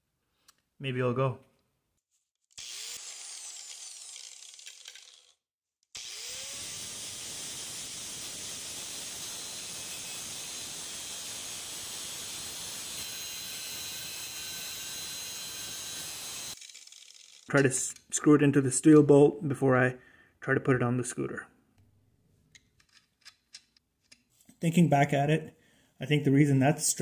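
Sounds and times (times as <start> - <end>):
angle grinder cutting steel: 2.5 - 18.0.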